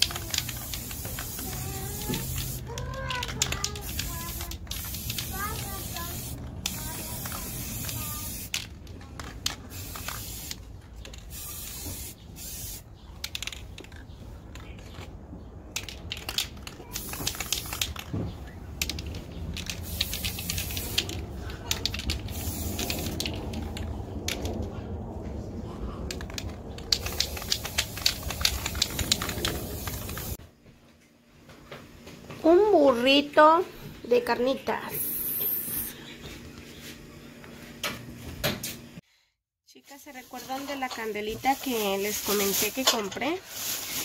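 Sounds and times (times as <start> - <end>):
spray paint can hissing: 0.0 - 8.7, 9.4 - 13.6, 15.8 - 18.2, 18.8 - 24.5, 26.2 - 30.4, 34.9 - 35.9.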